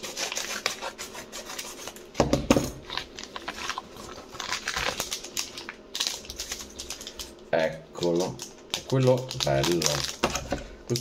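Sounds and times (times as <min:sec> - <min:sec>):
envelope rustling and crinkling: 0:02.8 - 0:07.4, 0:08.2 - 0:11.0.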